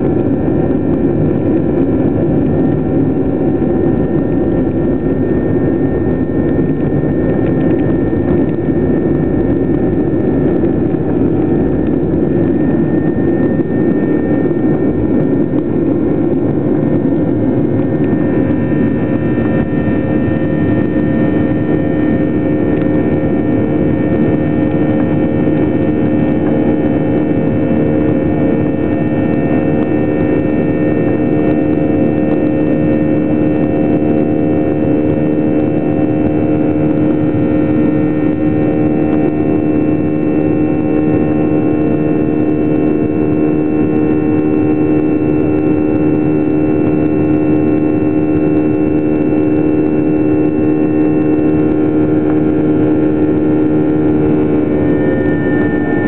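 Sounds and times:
jet engines roaring: 0:00.0 - 0:56.0.

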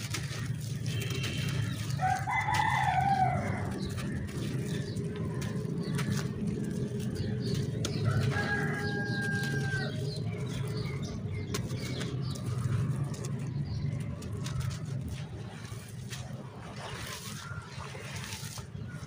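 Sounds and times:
rooster crowing: 0:02.0 - 0:03.8, 0:08.0 - 0:10.1.

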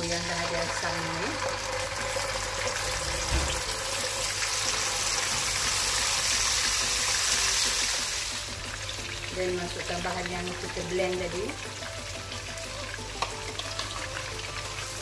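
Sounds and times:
paste sizzling in hot oil: 0:00.0 - 0:15.0
brief knock: 0:03.2 - 0:03.7.

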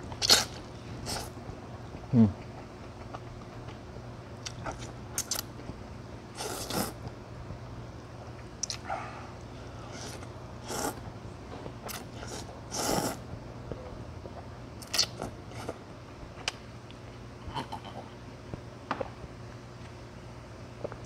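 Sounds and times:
man slurping noodles: 0:06.4 - 0:07.0, 0:09.9 - 0:11.0, 0:11.9 - 0:13.2.

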